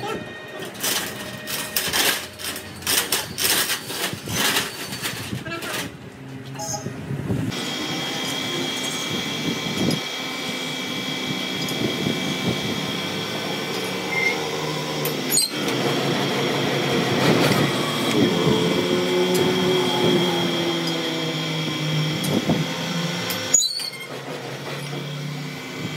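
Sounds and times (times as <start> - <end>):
lathe humming with high whine: 7.5 - 25.9.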